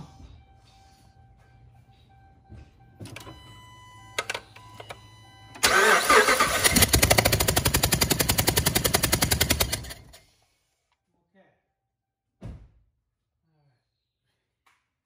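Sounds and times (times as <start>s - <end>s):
engine starter cranking: 5.6s - 10.2s.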